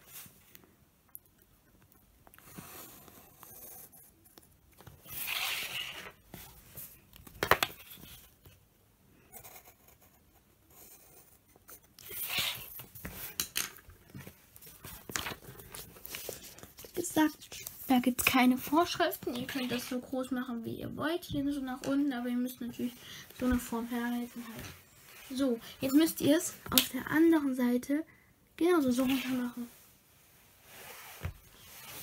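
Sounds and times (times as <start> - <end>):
pencil scratching on paper: 2.4 - 6.5, 9.3 - 13.3.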